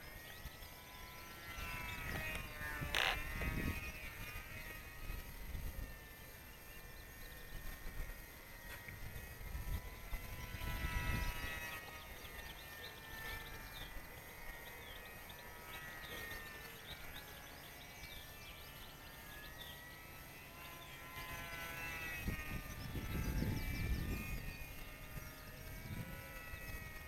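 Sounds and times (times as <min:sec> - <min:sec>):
small birds chirping: 0:00.0 - 0:08.1
model plane motor droning: 0:00.0 - 0:27.0
wind rumbling on microphone: 0:01.6 - 0:06.0, 0:08.9 - 0:11.8, 0:22.2 - 0:27.0.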